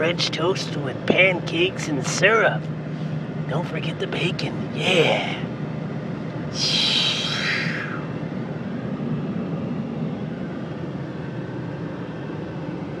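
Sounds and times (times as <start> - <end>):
diesel engine running: 0.0 - 13.0
road noise: 0.0 - 13.0
high whine sliding down: 6.5 - 8.4.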